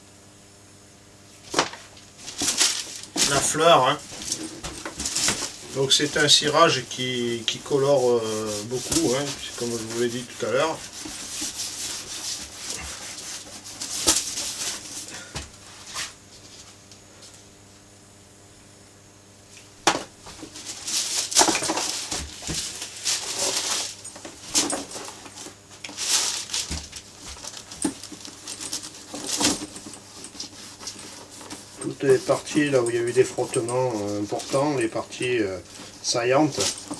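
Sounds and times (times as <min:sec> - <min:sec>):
gloved hands rubbing leather: 0:02.9 - 0:15.1, 0:20.3 - 0:36.9.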